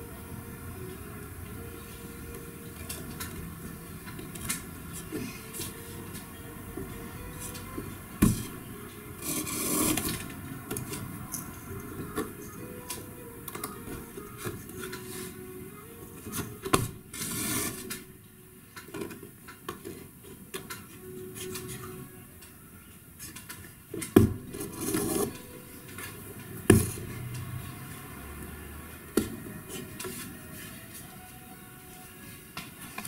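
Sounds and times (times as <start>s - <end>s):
rubbing and scraping: 9.2s - 11.1s, 17.1s - 17.9s, 24.5s - 25.4s.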